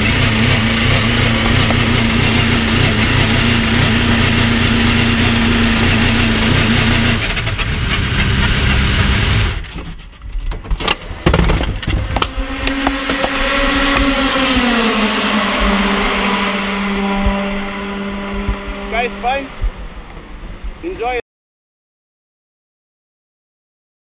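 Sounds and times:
race car engine running: 0.0 - 10.0, 10.8 - 20.8.

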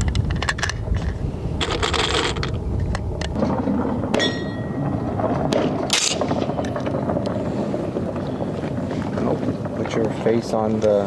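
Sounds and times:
wind rumbling on microphone: 0.0 - 11.0
rustling scrape: 0.9 - 2.6.

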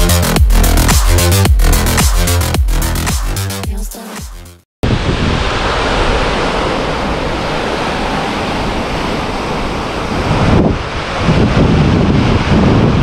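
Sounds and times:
surf washing onto beach: 4.8 - 13.0
wind buffeting microphone: 4.8 - 13.0.

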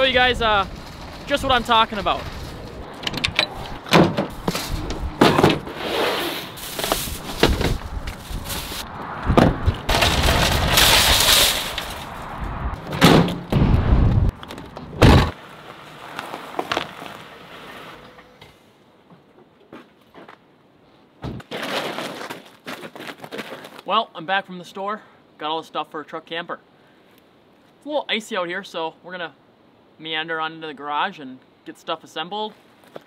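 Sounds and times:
tailgate clunks and bangs: 3.0 - 5.7, 12.9 - 13.7, 14.9 - 15.3.

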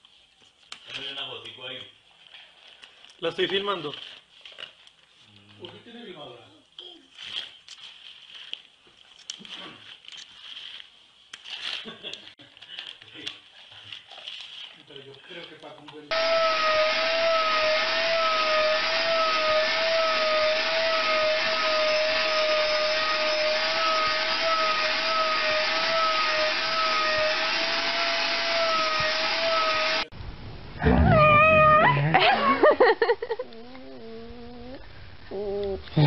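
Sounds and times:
vacuum cleaner whine: 16.1 - 30.1
dog yowling: 30.8 - 32.7, 33.4 - 35.9.

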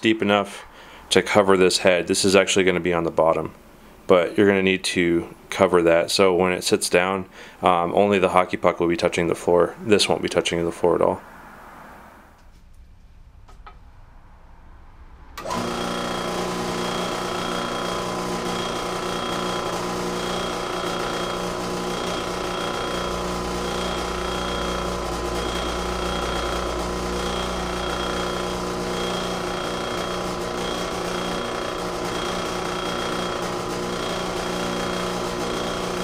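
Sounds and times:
drill press boring into rubber: 15.4 - 36.0.

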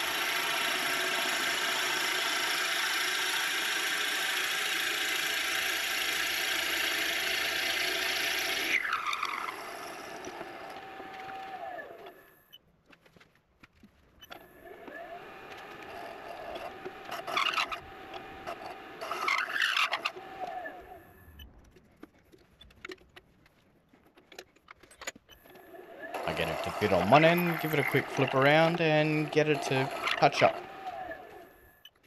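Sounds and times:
lathe drilling grinding whine: 0.0 - 12.2, 14.6 - 21.1, 25.5 - 31.6
lathe clicks: 14.3 - 21.0, 24.1 - 31.5.

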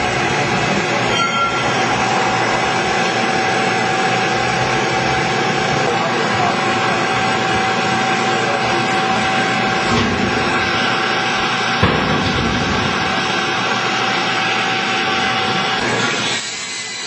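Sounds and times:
air blower rushing with whine: 0.0 - 17.0.

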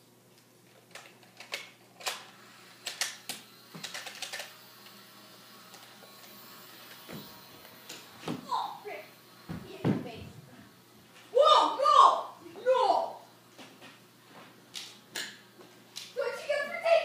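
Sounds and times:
plastic toy blaster clicks: 0.9 - 4.6.

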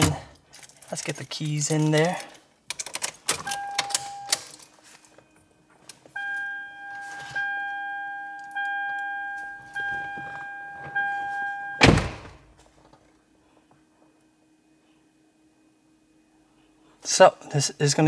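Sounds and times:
dashboard warning chime: 3.5 - 4.4, 6.2 - 11.9
loud thunk: 11.8 - 12.4.

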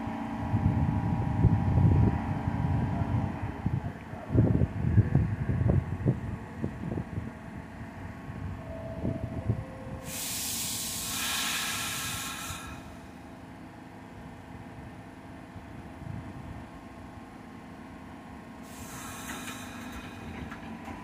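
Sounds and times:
subway train wheels clattering: 9.0 - 13.6, 18.5 - 21.0
compressed air hiss: 10.0 - 13.1, 18.6 - 20.3.

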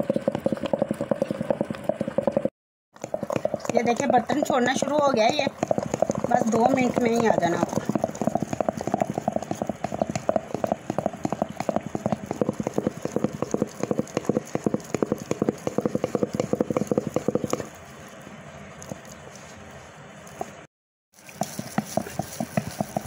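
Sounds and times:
wooden churner clattering in cream: 3.0 - 17.7, 21.3 - 23.0.

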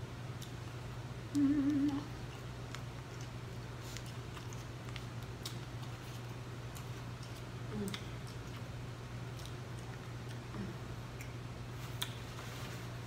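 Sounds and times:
low electrical hum: 0.0 - 13.0
woman humming: 1.3 - 2.2, 7.7 - 8.1, 10.5 - 10.8.

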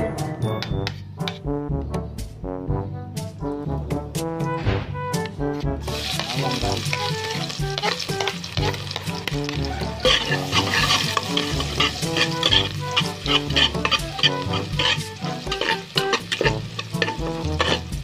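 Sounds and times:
background music: 0.0 - 18.0
garlic sizzling in hot oil: 5.8 - 18.0
metal spoon scraping pot: 5.8 - 18.0.

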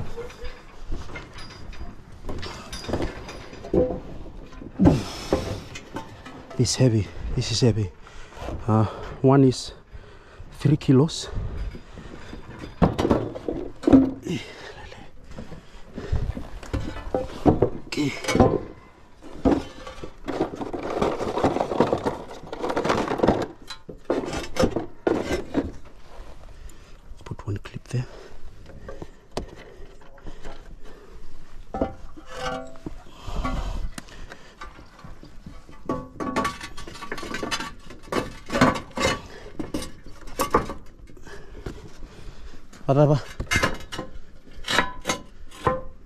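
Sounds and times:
roof tile knocking and clinking: 11.5 - 14.7, 15.3 - 25.8, 31.7 - 41.9.

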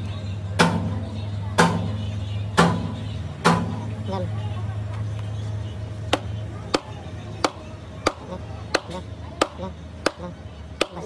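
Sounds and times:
low steady hum: 0.0 - 11.0
sledgehammer knocking wooden block: 8.8 - 11.0.

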